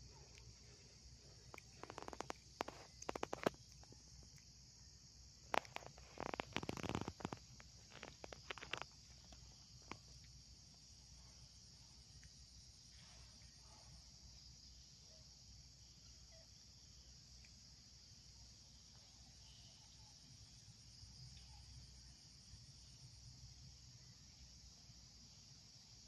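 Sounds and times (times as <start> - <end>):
insect chorus drone: 0.0 - 26.0
sharp clicks and crackles: 0.2 - 4.5, 5.4 - 10.4.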